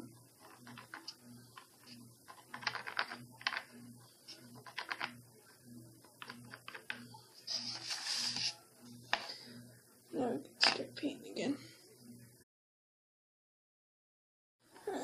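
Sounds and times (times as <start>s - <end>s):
faint low hum: 0.0s - 12.4s
paintbrush scraping and dabbing: 7.4s - 8.6s.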